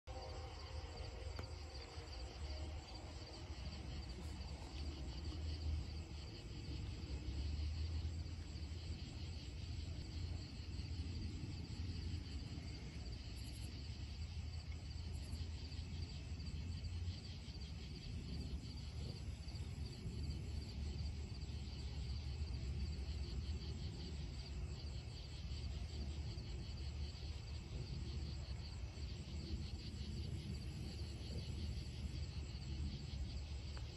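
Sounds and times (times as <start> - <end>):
low rumble: 0.0 - 24.0
crickets and insects chirping: 0.0 - 33.9.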